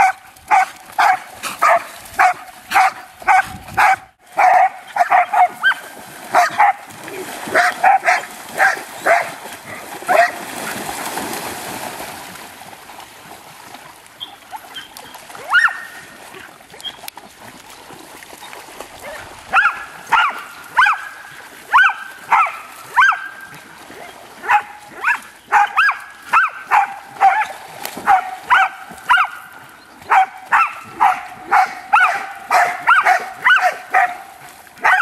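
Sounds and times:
dog yelping barks: 0.0s - 6.8s, 7.5s - 9.3s, 10.1s - 10.4s, 15.5s - 16.0s, 19.5s - 21.1s, 21.7s - 23.3s, 24.4s - 29.4s, 30.1s - 34.2s, 34.8s - 35.0s
dogs splashing into water: 0.0s - 35.0s.

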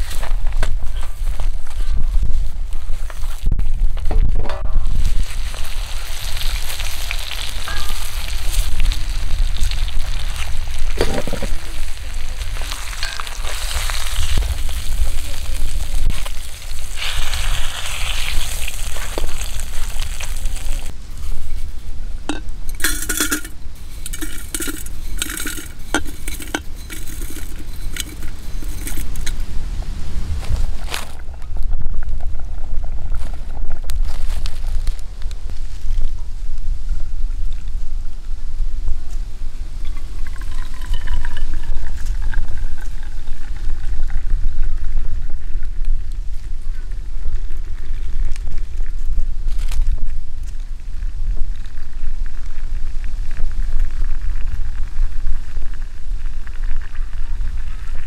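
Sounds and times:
hot pan hissing: 4.9s - 29.5s
glass clinking: 22.3s - 29.4s, 40.3s - 41.6s.

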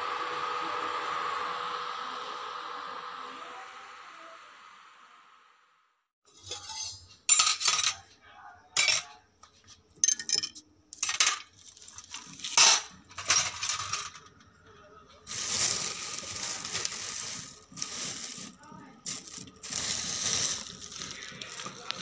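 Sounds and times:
metal utensils clinking: 6.3s - 8.1s, 8.8s - 9.2s, 10.0s - 14.4s.

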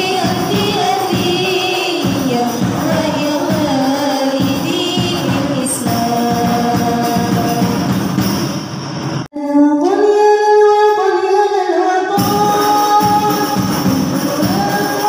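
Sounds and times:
girls singing: 0.0s - 8.0s, 9.4s - 15.0s
frame drums beating: 0.0s - 8.7s, 12.2s - 15.0s.

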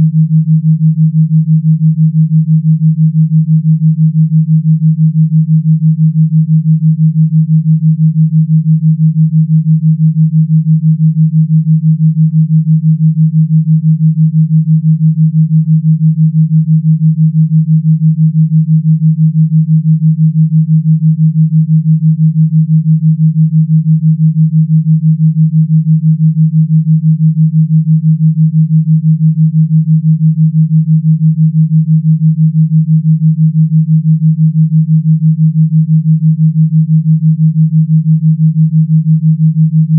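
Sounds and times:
pulsing low electronic tone: 29.5s - 39.9s.

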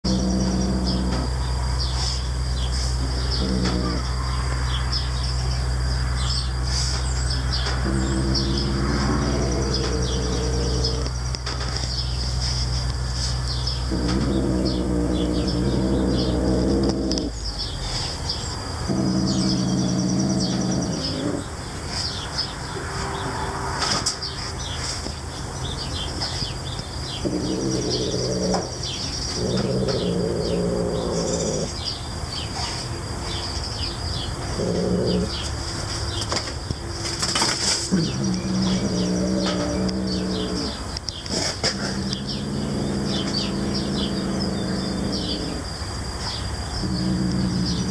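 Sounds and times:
cat growling low: 0.0s - 4.6s, 6.6s - 17.4s, 18.8s - 21.6s, 27.1s - 31.8s, 34.4s - 35.5s, 37.9s - 45.8s, 46.8s - 47.9s
small birds chirping: 0.0s - 23.3s, 24.1s - 47.9s.

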